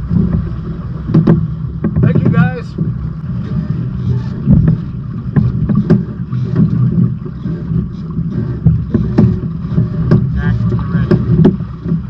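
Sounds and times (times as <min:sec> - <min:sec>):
water moving along hulls: 0:00.0 - 0:12.0
wind rumbling on microphone: 0:00.0 - 0:12.0
knocks and slaps: 0:01.1 - 0:02.9.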